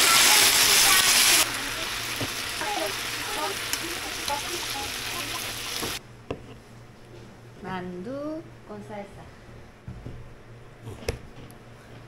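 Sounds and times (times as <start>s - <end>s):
dumplings sizzling in a pan: 0.0s - 6.0s.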